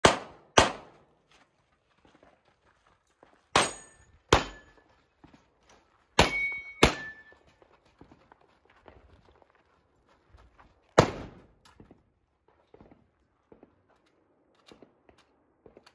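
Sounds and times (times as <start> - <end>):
suppressed pistol shots: 0.0 - 1.0
metallic ring of steel targets: 3.6 - 4.8, 6.2 - 7.4.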